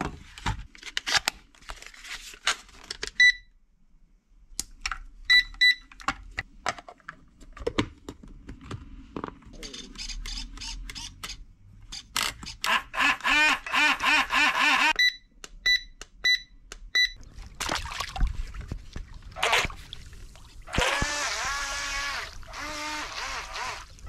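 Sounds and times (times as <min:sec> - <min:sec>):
water splashing: 0:17.2 - 0:21.5
electric boat motor whining: 0:20.8 - 0:23.9.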